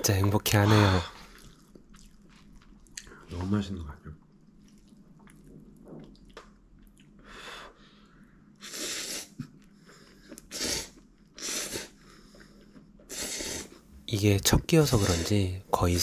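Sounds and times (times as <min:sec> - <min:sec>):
noodles slurped: 0:13.0 - 0:13.8.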